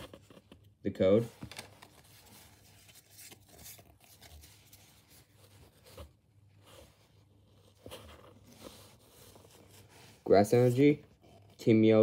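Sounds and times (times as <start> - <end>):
cards being shuffled: 0.0 - 6.1.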